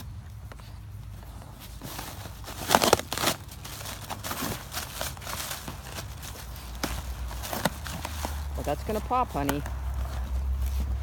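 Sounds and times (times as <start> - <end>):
plastic packaging crinkling: 1.5 - 11.0
dog tearing into package: 1.6 - 9.0.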